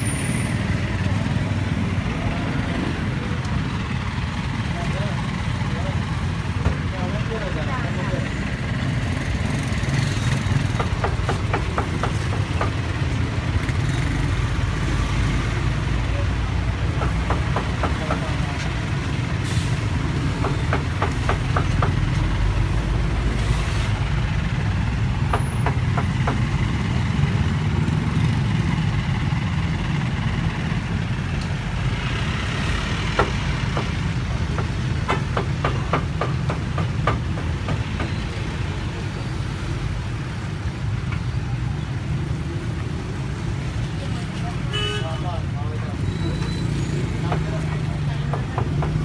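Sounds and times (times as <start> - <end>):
low rumble of road traffic: 0.0 - 49.0
cleaver chopping on wooden block: 33.1 - 38.2, 48.3 - 49.0.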